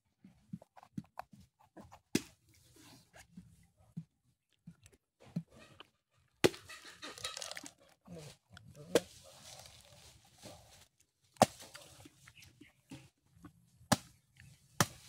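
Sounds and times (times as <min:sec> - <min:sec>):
machete chopping coconut husk: 0:11.4 - 0:11.8, 0:13.9 - 0:14.2, 0:14.8 - 0:15.0.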